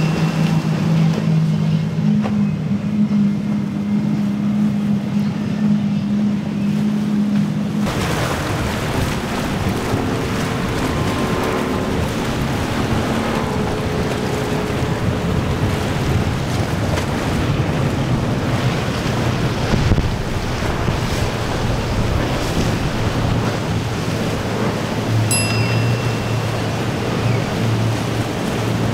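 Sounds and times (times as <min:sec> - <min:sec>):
rushing water and spray: 0:00.0 - 0:01.9, 0:07.8 - 0:28.9
powerboat engine hum: 0:00.0 - 0:28.9
wind buffeting microphone: 0:00.0 - 0:28.9.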